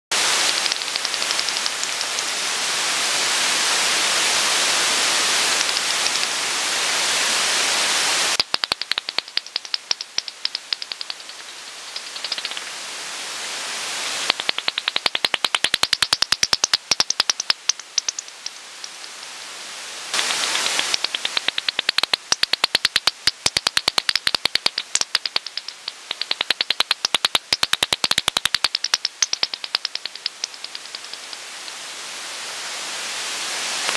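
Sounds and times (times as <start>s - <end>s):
bat echolocation clicking: 0.2s - 2.4s, 5.5s - 6.4s, 8.3s - 12.8s, 14.3s - 19.3s, 20.1s - 31.9s
bat detector hiss: 8.3s - 12.7s, 14.3s - 18.5s, 20.2s - 31.7s.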